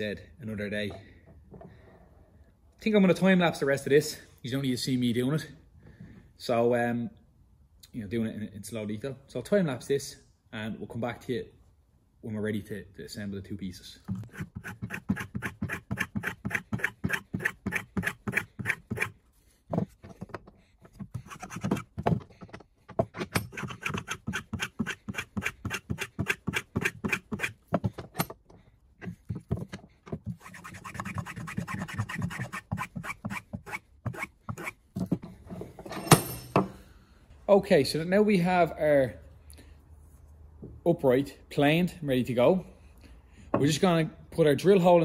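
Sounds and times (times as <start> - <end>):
hand plane rasping wood: 14.1 - 19.2, 19.8 - 22.0, 23.4 - 27.9, 29.2 - 34.8.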